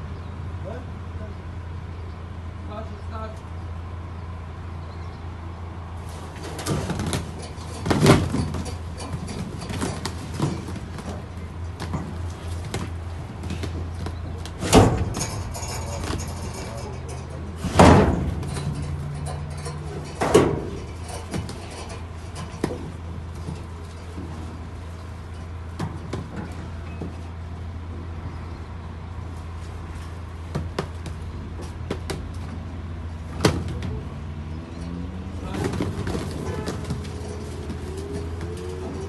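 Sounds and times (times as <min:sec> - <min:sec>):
boxes clattering in metal container: 0:06.1 - 0:27.2, 0:35.4 - 0:39.0.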